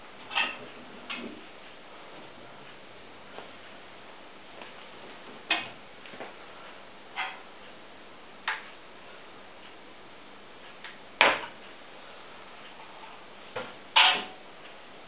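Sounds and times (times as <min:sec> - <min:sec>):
sharp knocks and clatters: 0:13.6 - 0:14.4.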